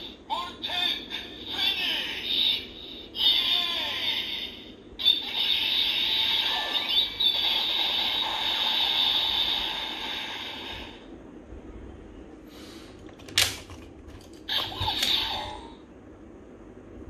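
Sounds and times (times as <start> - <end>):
toy electronic sound effects: 5.0 - 10.1, 14.5 - 15.6.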